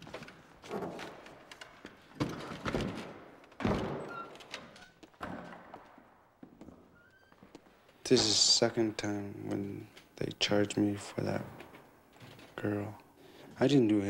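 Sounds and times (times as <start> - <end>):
swinging doors thudding shut: 2.2 - 6.1.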